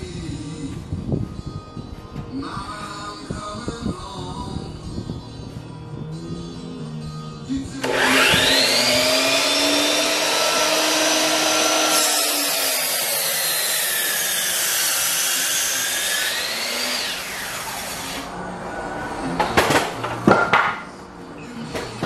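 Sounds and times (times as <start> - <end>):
miter saw whining: 7.8 - 18.3
saw cutting wood: 7.8 - 18.3.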